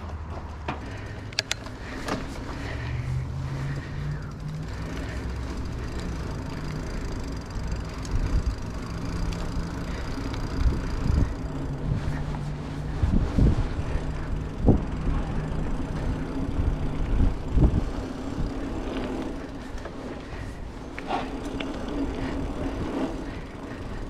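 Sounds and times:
vehicle engine running: 0.0s - 24.0s
sharp clicks: 1.3s - 1.8s.

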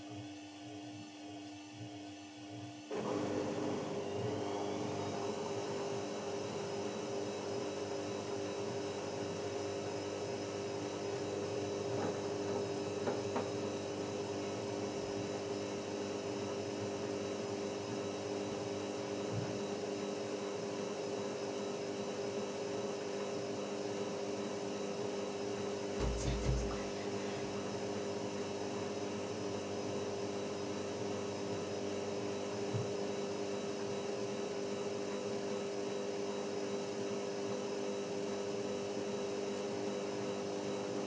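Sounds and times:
washing machine motor hum: 0.0s - 41.0s.

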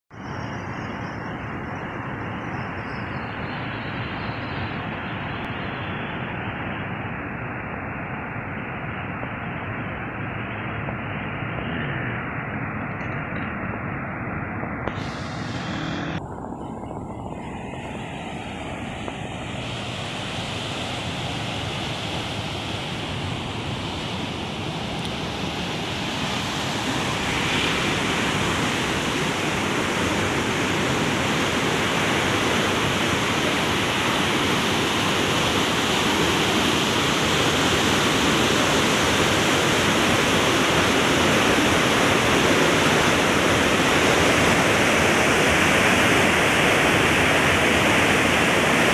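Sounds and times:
water rushing through sluice gates: 19.6s - 48.9s.

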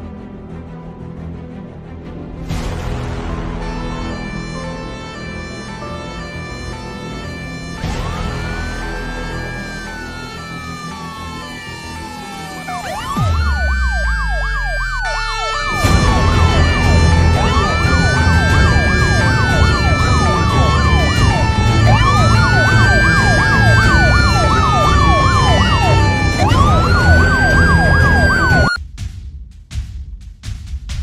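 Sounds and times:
dramatic music with low pulse: 0.0s - 31.0s
siren wailing: 3.6s - 28.8s
siren yelping: 4.0s - 28.8s.

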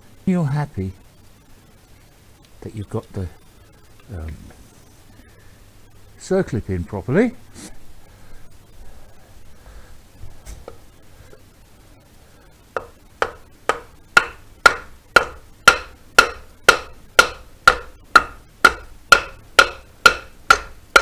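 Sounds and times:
wooden mallet knocking on wood: 12.8s - 21.0s.

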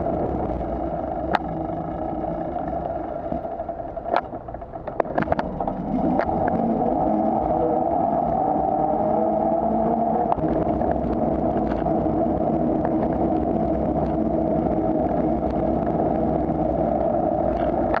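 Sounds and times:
road noise: 0.0s - 18.0s
wind rush on microphone: 0.0s - 18.0s
faint clicks: 1.1s - 6.6s, 10.2s - 18.0s.

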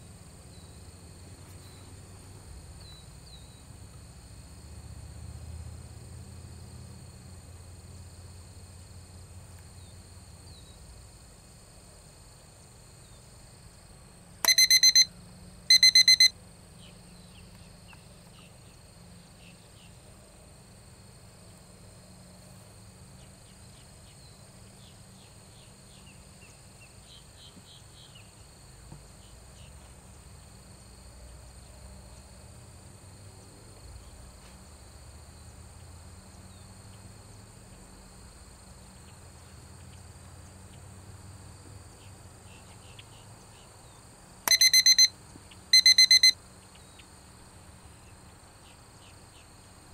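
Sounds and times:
insects droning: 0.0s - 49.9s
high electronic beeps: 14.4s - 15.1s, 15.7s - 16.3s, 44.5s - 45.1s, 45.8s - 46.4s.

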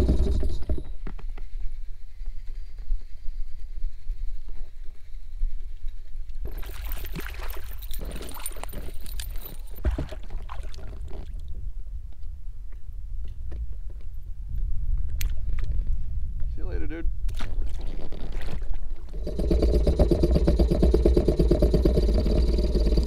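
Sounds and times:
water splashing at boat side: 6.5s - 11.4s, 17.3s - 19.2s.

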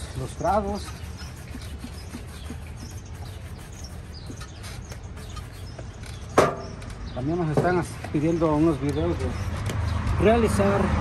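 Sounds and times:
low street hum: 0.0s - 11.0s.

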